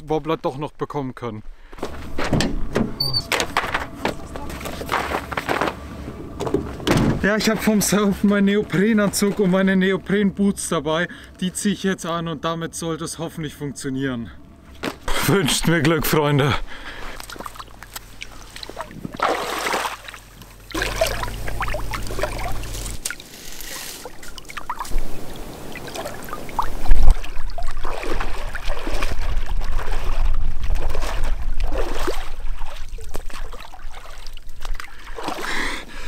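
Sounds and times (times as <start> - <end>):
water splashing from wading: 16.8 - 35.8
low rumble: 20.2 - 23.2.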